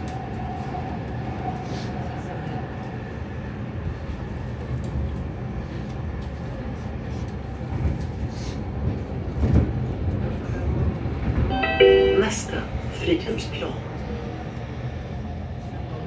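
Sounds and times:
train wheels rumbling on rails: 0.0 - 11.5.

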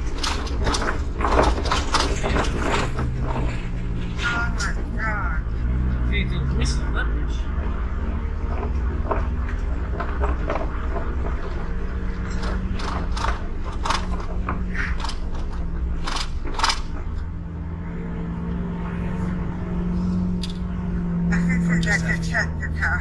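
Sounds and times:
car tyres clattering over bridge boards: 0.0 - 21.4
car engine and road hum: 0.0 - 23.0.

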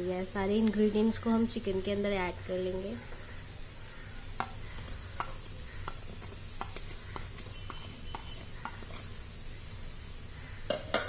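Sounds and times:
spice plate tapping on pan: 4.3 - 9.0, 10.7 - 11.0.

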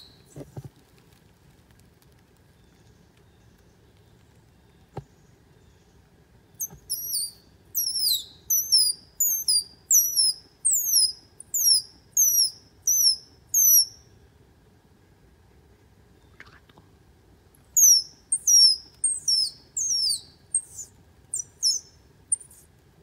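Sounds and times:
small animal squeaky calls: 6.6 - 14.0, 17.8 - 22.7.

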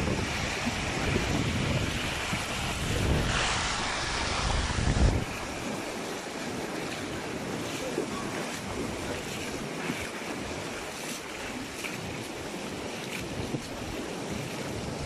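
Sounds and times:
feet wading through water: 0.0 - 15.0
surf: 0.0 - 15.0
wind on microphone: 0.0 - 15.0.

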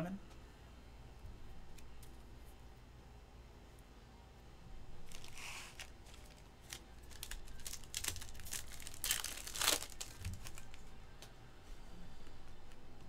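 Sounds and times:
foil wrapper crinkling: 5.0 - 10.9
foil wrapper ripping: 5.0 - 10.9.

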